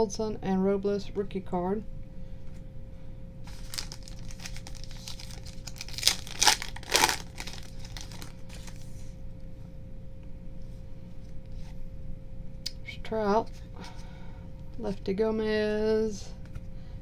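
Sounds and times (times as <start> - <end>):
foil wrapper tearing and crinkling: 3.5 - 8.8.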